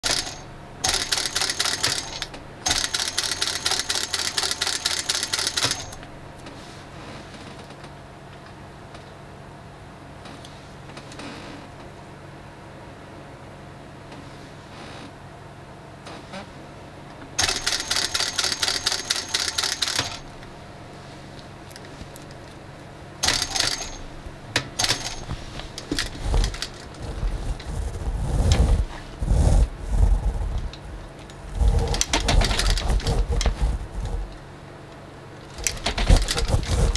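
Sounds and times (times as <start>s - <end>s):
sewing machine stitching: 0.0s - 6.0s, 17.4s - 20.3s, 23.2s - 24.0s, 24.8s - 28.8s, 31.6s - 34.3s, 35.5s - 36.9s.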